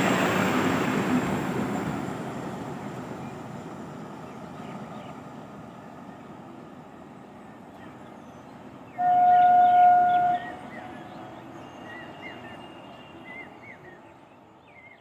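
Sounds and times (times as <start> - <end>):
diesel train running: 0.0 - 15.0
birds chirping: 4.2 - 15.0
train horn blast: 9.0 - 11.0.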